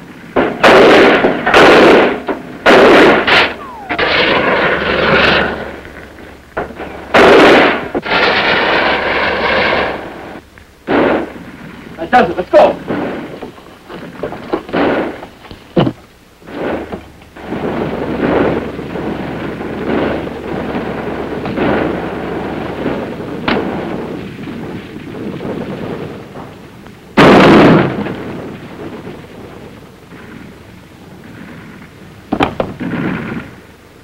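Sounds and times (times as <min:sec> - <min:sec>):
rumbling explosions: 0:00.3 - 0:15.4, 0:16.4 - 0:33.6
gunshots: 0:00.4 - 0:05.7, 0:07.1 - 0:10.0, 0:27.2 - 0:28.1.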